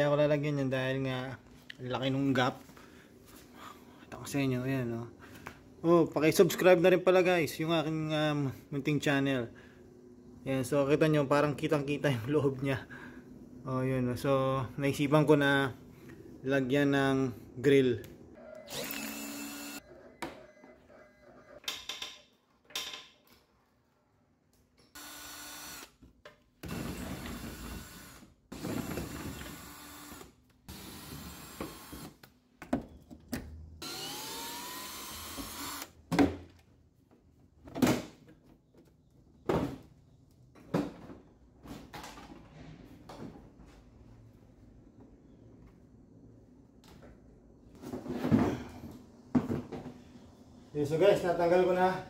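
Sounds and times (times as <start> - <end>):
cordless drill whining: 18.4 - 19.9, 25.0 - 25.9, 28.8 - 32.2, 33.8 - 36.0.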